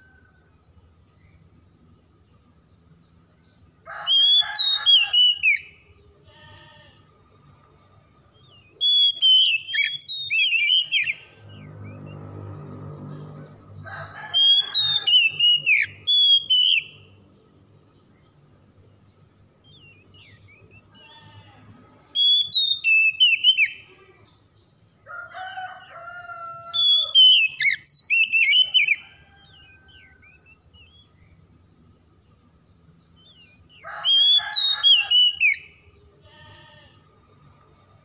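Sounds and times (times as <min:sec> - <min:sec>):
low drawn-out bird calls: 0:08.6 - 0:18.6
bird whistled song: 0:08.8 - 0:12.2, 0:14.4 - 0:17.2, 0:22.2 - 0:23.9, 0:26.8 - 0:29.0, 0:33.2 - 0:35.7.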